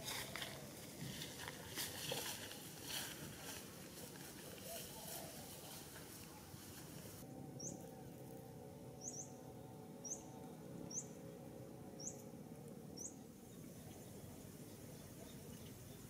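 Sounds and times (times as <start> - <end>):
faint low hum: 0.0 - 16.0
small bird chirping: 7.6 - 7.8, 9.0 - 9.4, 10.0 - 11.2, 12.0 - 12.3, 12.9 - 16.0.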